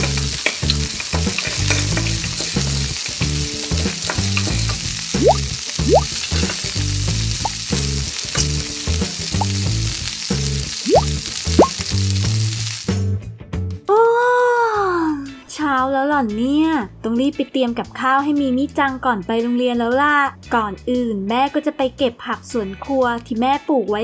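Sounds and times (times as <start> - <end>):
frying sizzle: 0.0 - 13.1.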